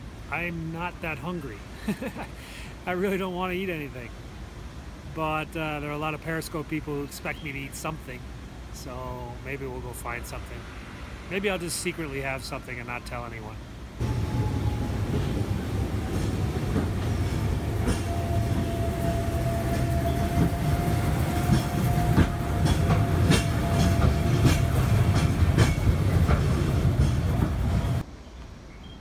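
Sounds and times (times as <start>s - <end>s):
tram car rumbling on rails: 14.0s - 28.0s
wheels clicking on track: 14.0s - 28.0s.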